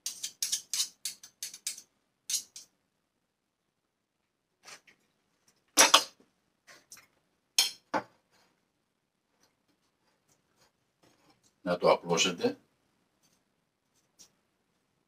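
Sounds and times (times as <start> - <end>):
spoon scraping and tapping: 0.0 - 2.7, 7.6 - 8.1.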